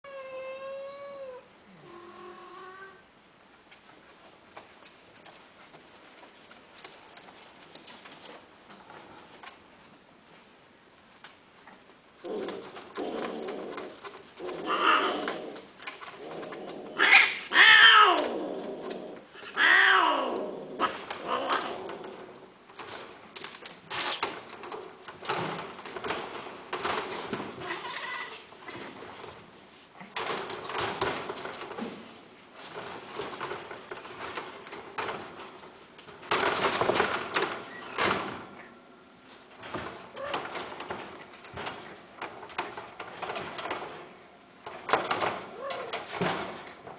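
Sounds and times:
cat yowling: 17.0 - 18.3
cats clattering in wire cage: 20.8 - 29.4, 30.1 - 38.6, 39.6 - 46.9.

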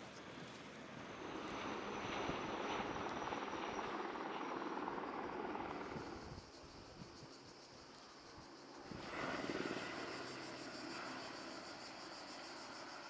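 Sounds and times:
propeller plane flying overhead: 0.0 - 13.0.

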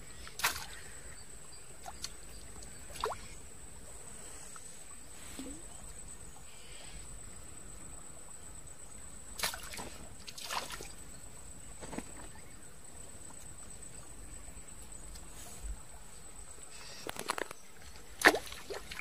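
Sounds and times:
faint water trickle: 0.0 - 17.0
short splashes in shallow water: 0.2 - 1.0, 1.8 - 3.4, 9.4 - 11.0, 18.0 - 19.0.

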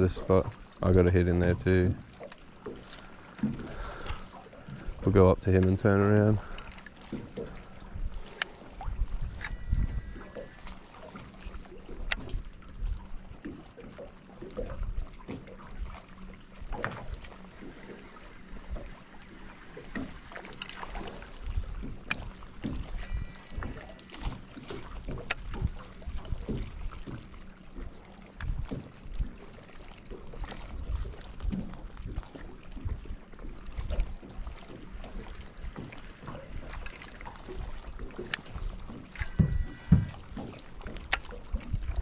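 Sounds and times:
faint steady hum: 0.0 - 13.4, 14.1 - 24.6, 37.9 - 41.1
water slapping against hull: 0.0 - 42.0
sharp clicks: 39.2 - 40.2.

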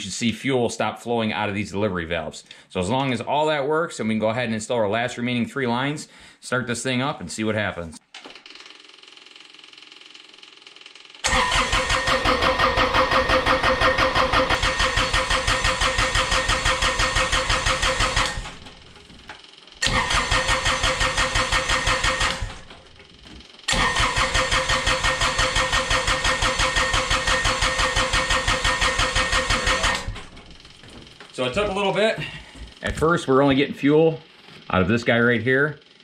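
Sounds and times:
starter cranking diesel engine: 11.2 - 19.0, 19.8 - 23.0, 23.7 - 30.8.

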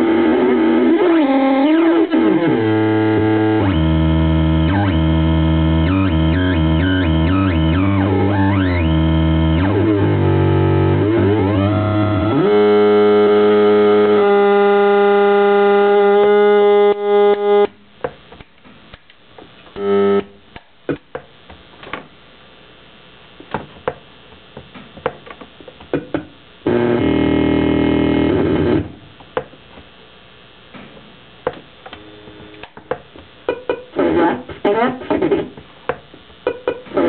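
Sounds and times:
harsh electronic tone: 0.0 - 17.7, 19.8 - 20.4, 26.6 - 29.0
buzzy electronic chord: 0.0 - 17.9, 19.8 - 20.5, 26.0 - 29.2, 31.3 - 32.8
electronic clicks and crackles: 0.0 - 22.2, 23.2 - 37.0.

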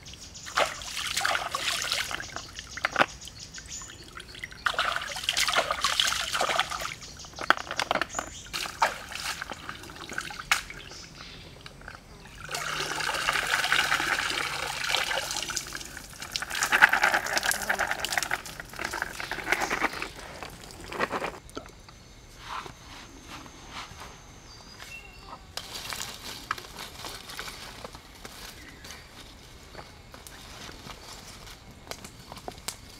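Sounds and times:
water streaming through basket: 0.4 - 2.4, 12.3 - 20.6.

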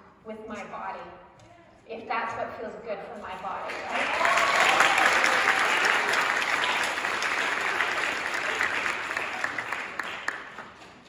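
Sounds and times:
large audience clapping: 3.7 - 11.0.

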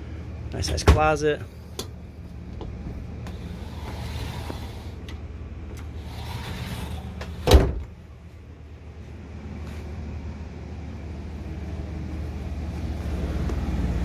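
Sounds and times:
steady low hum: 0.0 - 14.0
sliding door on track: 3.3 - 5.2, 5.8 - 7.8.

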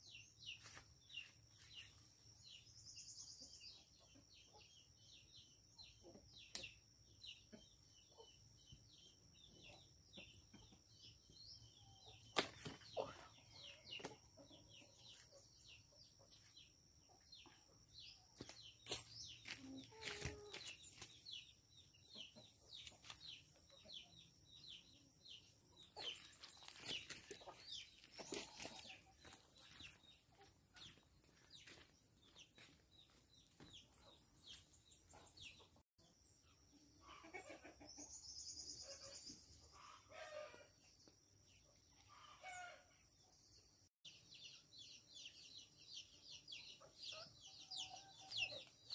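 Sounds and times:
small birds chirping: 0.0 - 48.9
chickens clucking: 12.0 - 21.2, 22.0 - 35.8, 36.9 - 41.0.

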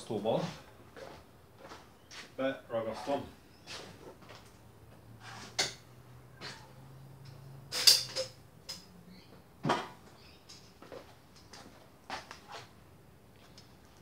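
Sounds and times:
tools clicking and knocking: 7.3 - 8.9.

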